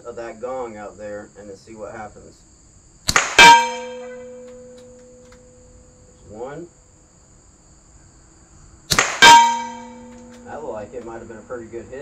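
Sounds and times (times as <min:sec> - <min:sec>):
insects humming: 0:00.0 - 0:12.0
air pistol shot: 0:03.1 - 0:05.4, 0:08.9 - 0:10.5
steel gong clang ringing: 0:03.4 - 0:05.2, 0:09.2 - 0:10.7.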